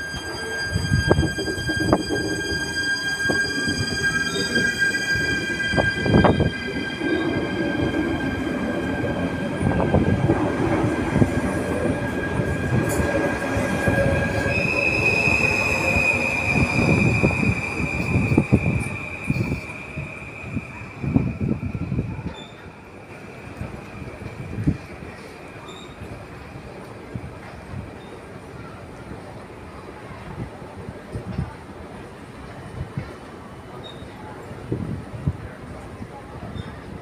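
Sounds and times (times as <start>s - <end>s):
high-pitched wheel squeal: 0.0s - 10.3s, 11.4s - 22.6s.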